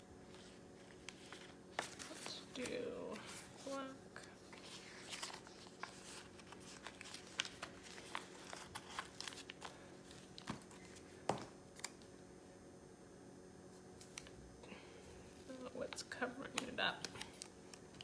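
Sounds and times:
sticker sheet crinkling: 0.3s - 11.0s.

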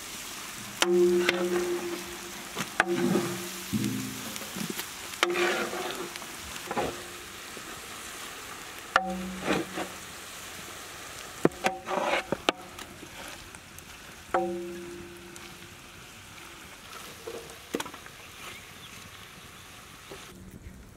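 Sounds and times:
oil sizzling: 0.0s - 20.3s
pan ringing: 0.8s - 4.5s, 9.0s - 9.8s, 14.4s - 15.6s
metal spatula scraping and knocking pan: 0.8s - 7.3s, 8.9s - 10.1s, 11.4s - 12.8s, 14.4s - 15.6s.

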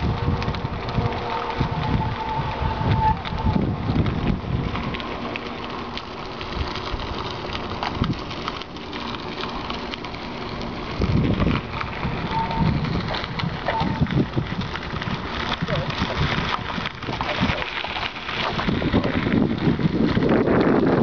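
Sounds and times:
wind on microphone: 0.0s - 5.1s, 10.8s - 21.0s
bicycle clicks and rattles: 0.0s - 21.0s
bicycle tyres on grit: 0.0s - 21.0s.

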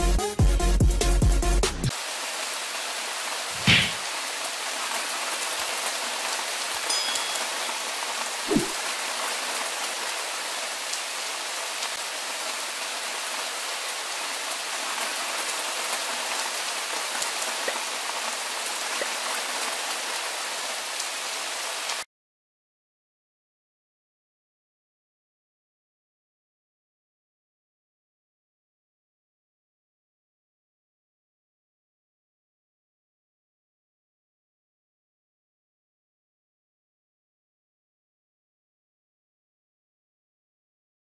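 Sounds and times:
heavy rain falling: 1.9s - 22.0s
low thump: 3.6s - 4.0s.

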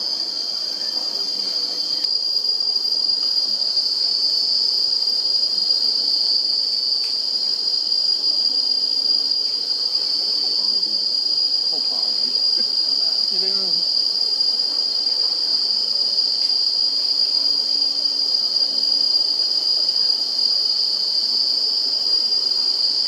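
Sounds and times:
high-pitched insect chorus: 0.0s - 23.0s.

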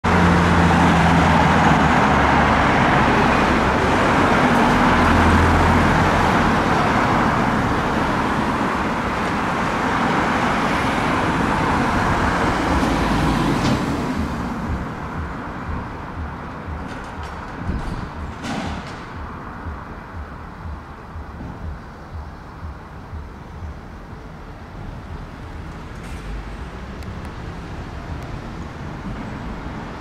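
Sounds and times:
cars passing: 0.0s - 30.0s
engine hum: 0.0s - 30.0s.

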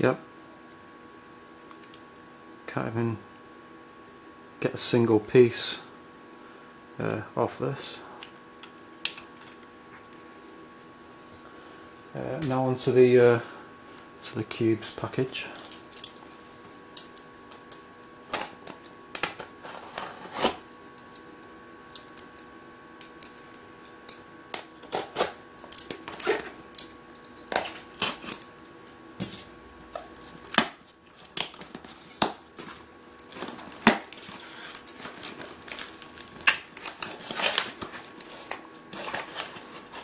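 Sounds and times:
faint steady hum: 0.0s - 40.0s
plastic wrap tearing and crinkling: 24.6s - 28.5s, 29.2s - 40.0s.

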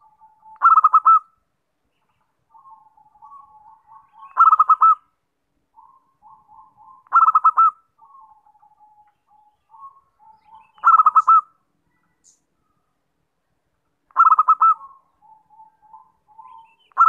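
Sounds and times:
dove cooing: 0.0s - 1.3s, 2.5s - 5.0s, 5.8s - 11.6s, 14.1s - 17.0s.

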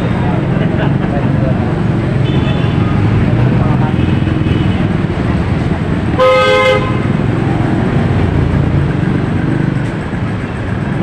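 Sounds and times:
passing street traffic: 0.0s - 11.0s
vehicle horn honking: 6.2s - 7.1s.

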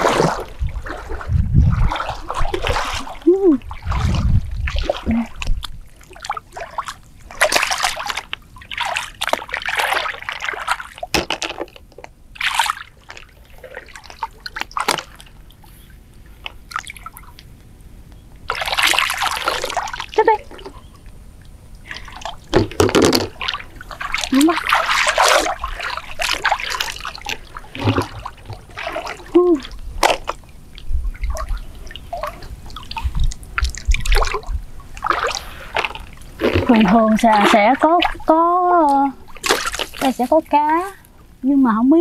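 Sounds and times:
stream water splashing: 0.0s - 15.7s, 18.5s - 20.8s, 21.8s - 41.0s.

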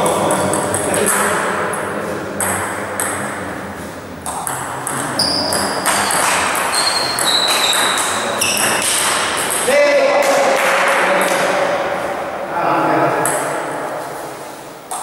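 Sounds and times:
table tennis ball hits: 0.1s - 3.4s, 4.2s - 11.6s, 13.2s - 13.9s
high squeaks: 5.1s - 9.6s.

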